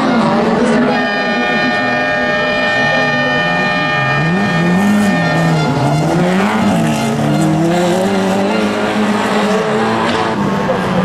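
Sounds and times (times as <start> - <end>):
race car engines revving: 0.0 - 11.0.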